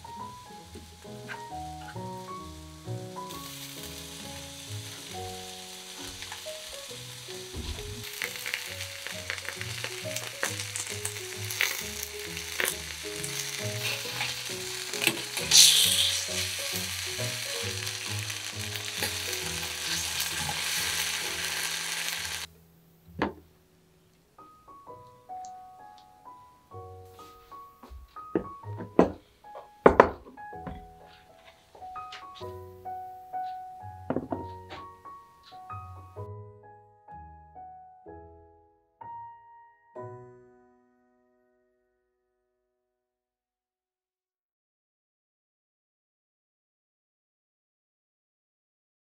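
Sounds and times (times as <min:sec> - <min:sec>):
soft piano music: 0:00.0 - 0:42.4
fish sizzling in frying pan: 0:00.4 - 0:22.5
knock: 0:07.5 - 0:08.1, 0:23.2 - 0:23.4, 0:27.9 - 0:30.9, 0:34.1 - 0:34.8.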